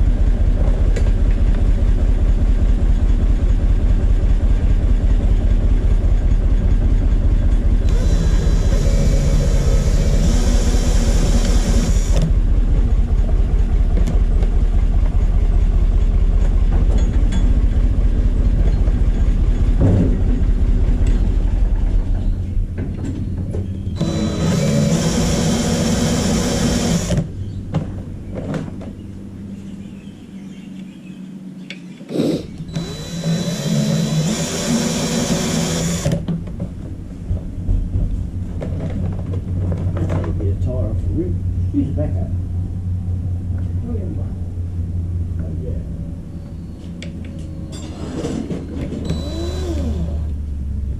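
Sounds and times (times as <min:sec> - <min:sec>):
steady low rumble: 0:00.0 - 0:26.2, 0:35.3 - 0:47.6, 0:49.0 - 0:50.9
cordless drill running: 0:07.8 - 0:12.4, 0:24.0 - 0:27.3, 0:32.1 - 0:36.2, 0:49.0 - 0:50.4.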